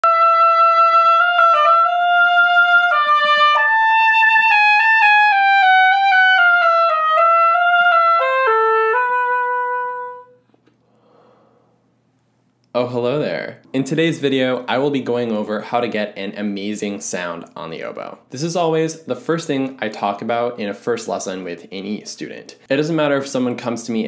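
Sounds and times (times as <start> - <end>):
solo oboe melody: 0.0 - 10.5.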